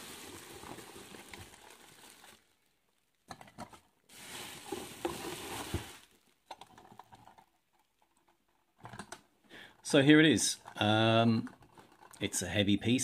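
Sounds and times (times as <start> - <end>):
bubble wrap rustling and crinkling: 0.0 - 3.2, 4.1 - 6.5.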